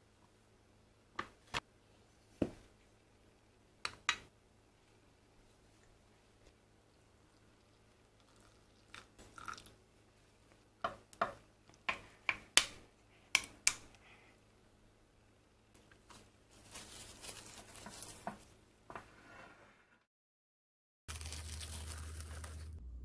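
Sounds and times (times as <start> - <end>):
cling film crinkling: 16.0 - 18.5, 21.1 - 22.8.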